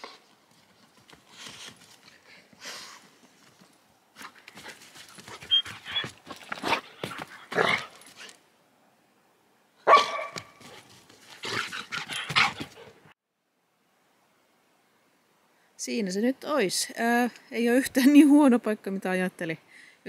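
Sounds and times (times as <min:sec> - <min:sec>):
dog barking: 0:09.8 - 0:10.6.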